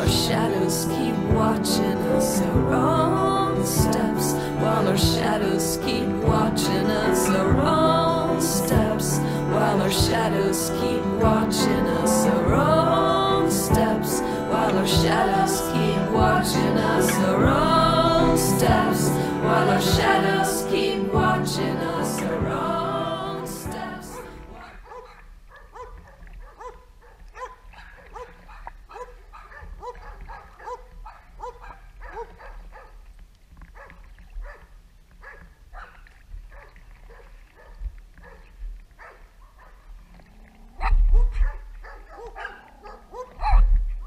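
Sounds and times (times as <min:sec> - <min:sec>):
song with singing: 0:00.0 - 0:24.6
dog barking: 0:24.2 - 0:32.9, 0:33.8 - 0:39.8, 0:40.8 - 0:43.6.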